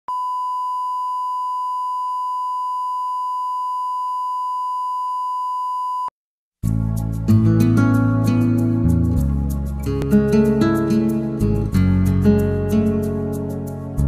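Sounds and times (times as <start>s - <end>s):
electronic test tone beep: 0.1s - 6.1s.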